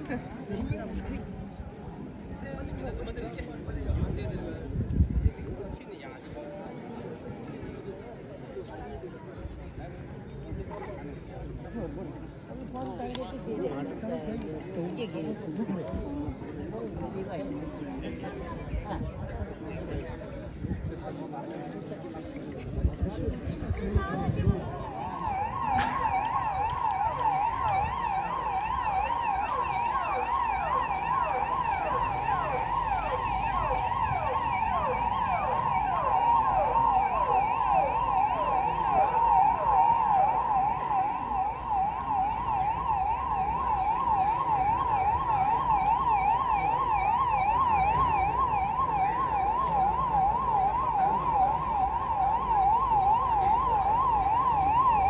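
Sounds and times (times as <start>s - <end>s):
siren sweeping downward: 24.8s - 55.0s
siren warbling: 24.9s - 55.0s.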